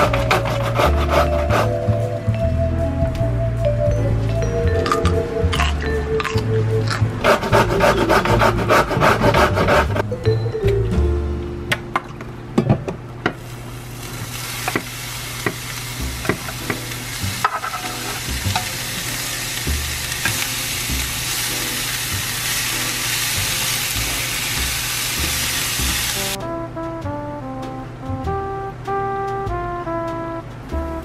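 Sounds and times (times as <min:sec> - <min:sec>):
carrots sizzling in hot oil: 0:13.4 - 0:26.4
chopsticks tapping pan: 0:14.6 - 0:19.1.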